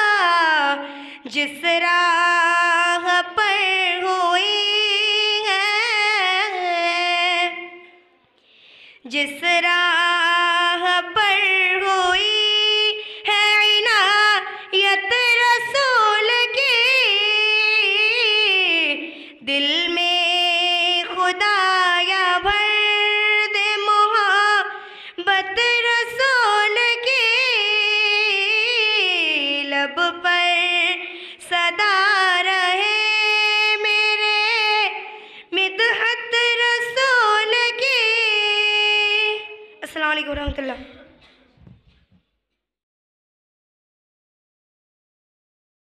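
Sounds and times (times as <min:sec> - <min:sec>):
girl singing unaccompanied: 0:00.0 - 0:08.1, 0:09.1 - 0:40.7
singer breathing: 0:00.8 - 0:01.3, 0:07.9 - 0:09.1, 0:13.0 - 0:13.3, 0:14.4 - 0:14.8, 0:19.0 - 0:19.4, 0:24.7 - 0:25.2, 0:31.0 - 0:31.5, 0:35.1 - 0:35.6.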